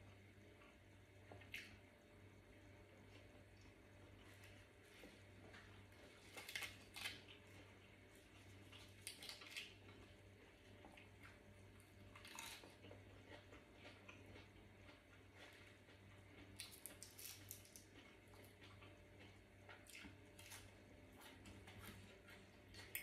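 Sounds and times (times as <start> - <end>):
faint steady hum: 0.0 - 23.0
lettuce leaves tearing crackles: 6.2 - 7.5, 8.7 - 9.8, 12.2 - 12.8, 16.6 - 17.9.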